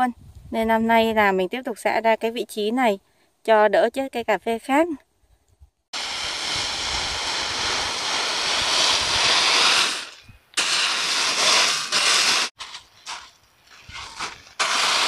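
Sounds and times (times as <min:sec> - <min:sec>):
rake scraping through coffee cherries: 0:06.0 - 0:15.0.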